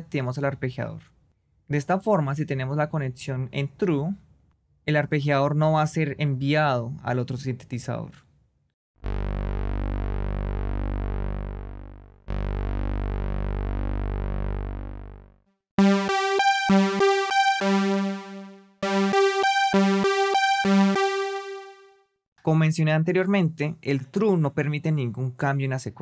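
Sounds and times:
low held synthesizer notes: 9.0 - 21.9
synthesizer arpeggio: 9.0 - 22.0.

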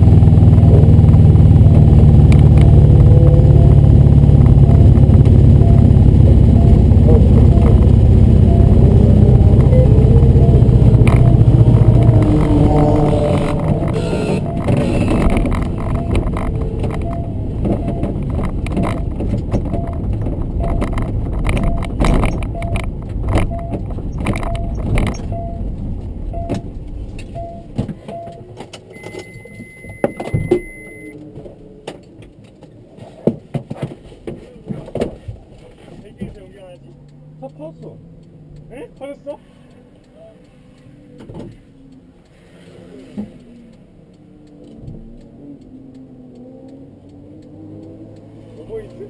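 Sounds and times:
car engine low rumble: 0.0 - 49.0
faint repeating tone: 2.6 - 31.2.

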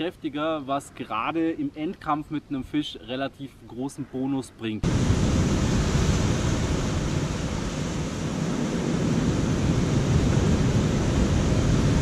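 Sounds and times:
wind buffeting microphone: 4.8 - 12.0.

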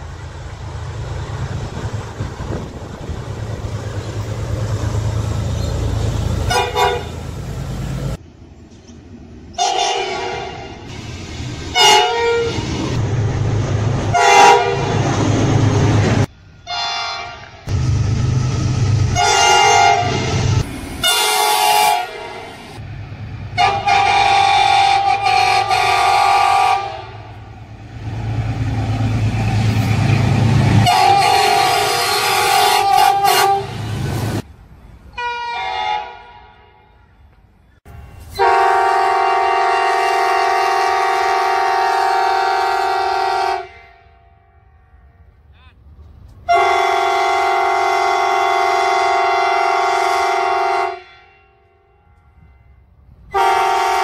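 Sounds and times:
locomotive engine rumble: 0.0 - 35.2
locomotive air horn: 6.4 - 7.2, 9.6 - 10.9, 11.7 - 12.8, 14.1 - 15.0, 16.7 - 17.7, 19.0 - 20.4, 21.0 - 22.8, 23.6 - 27.4, 30.8 - 34.0, 35.1 - 37.0, 38.2 - 44.4, 46.4 - 52.7, 53.3 - 54.0.

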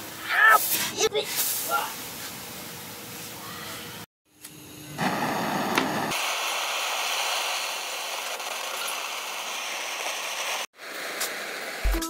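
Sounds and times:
torch flame hissing: 4.9 - 11.9.

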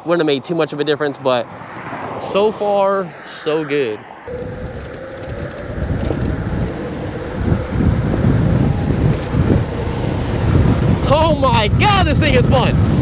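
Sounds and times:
wind rushing over microphone: 1.4 - 13.0
electric motor whine: 4.3 - 11.0.

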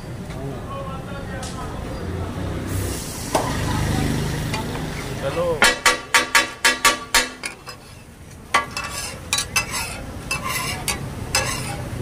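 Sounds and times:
metal spatulas clanking on griddle: 5.6 - 12.0.

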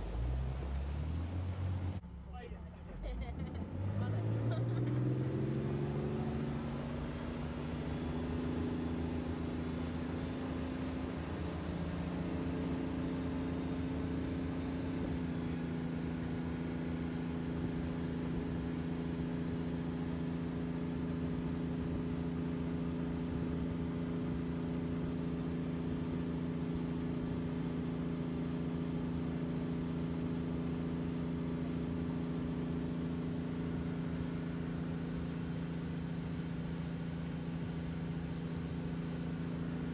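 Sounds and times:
boat engine: 0.0 - 39.9.

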